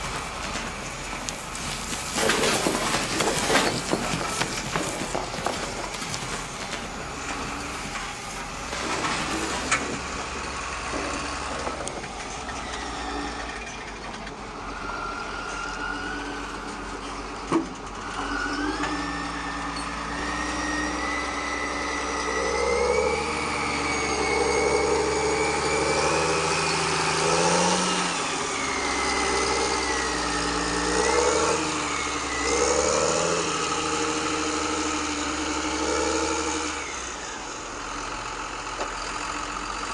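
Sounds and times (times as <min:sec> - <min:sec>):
soil and stones rattling out: 0:00.0 - 0:14.6, 0:22.8 - 0:35.0
steady engine-like hum: 0:00.0 - 0:39.9.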